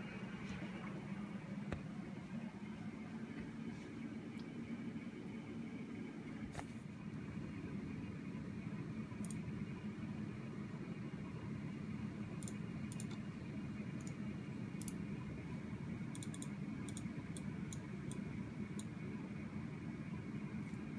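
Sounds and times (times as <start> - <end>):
desktop computer humming: 0.0 - 20.9
computer mouse clicks: 9.2 - 9.4, 12.4 - 13.3, 14.0 - 14.2, 14.8 - 15.0, 16.1 - 18.9.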